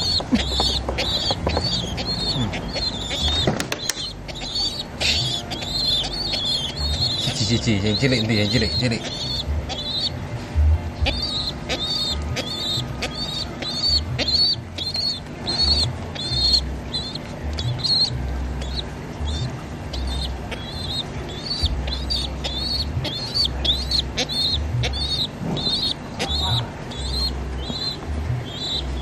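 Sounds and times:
handling thumps and rumble: 0.0 - 1.8
pigeon chicks peeping: 0.0 - 29.0.

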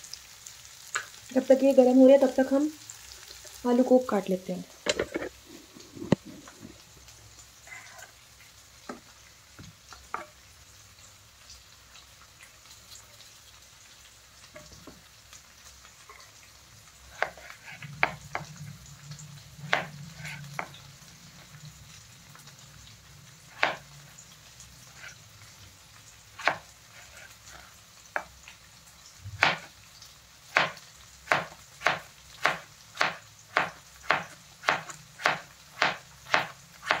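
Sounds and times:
onions sizzling in oil: 0.0 - 37.0.

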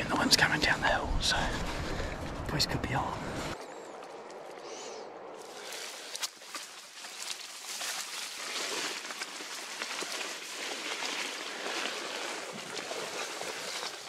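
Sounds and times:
dry grass rustling and crackling: 5.3 - 14.0.

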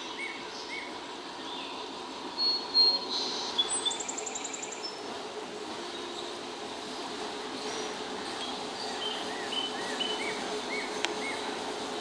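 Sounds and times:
diesel locomotive hum: 0.0 - 12.0
songbirds chirping and whistling: 7.6 - 11.6.

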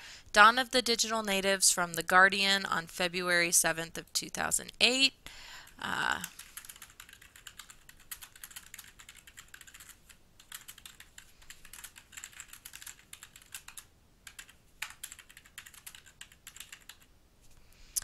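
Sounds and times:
typing on computer keyboard: 6.2 - 17.1.

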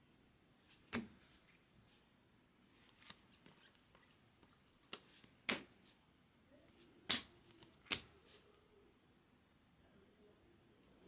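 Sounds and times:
trading cards flicking: 7.1 - 8.1.

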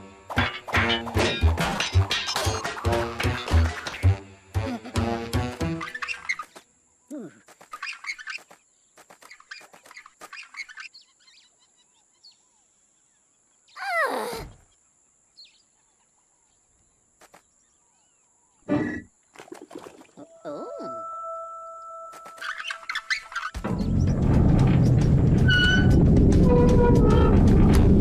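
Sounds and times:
cartoon music: 2.7 - 6.0, 20.2 - 23.4
bird-like chirps and clicks: 5.8 - 6.7, 7.4 - 11.0, 22.1 - 23.6.

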